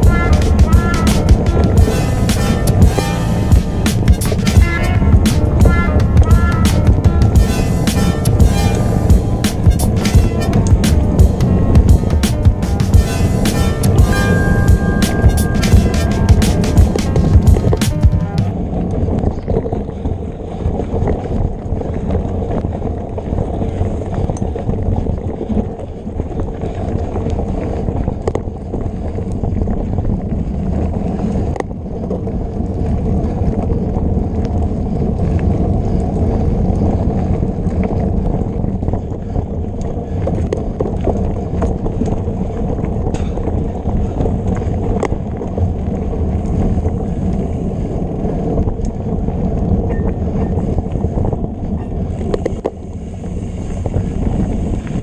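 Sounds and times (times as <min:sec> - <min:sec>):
bike tyres and frame rumbling: 0:00.0 - 0:55.0
wind buffeting microphone: 0:00.0 - 0:55.0
bike rattling clicks and knocks: 0:15.7 - 0:55.0.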